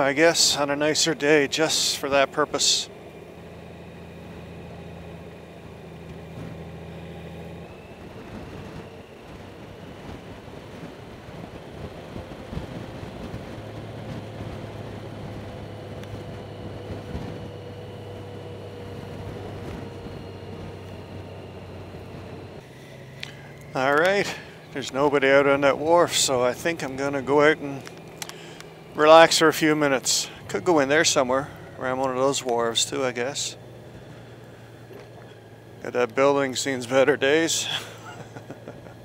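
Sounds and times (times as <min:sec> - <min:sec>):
motorcycle engine running: 0:00.0 - 0:39.0
wind noise: 0:07.5 - 0:22.6.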